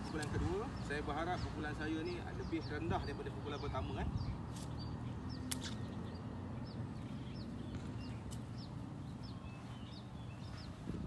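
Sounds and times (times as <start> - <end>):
bird chirping: 0.0 - 11.0
low outdoor hum: 0.0 - 11.0
sharp click: 5.4 - 5.9.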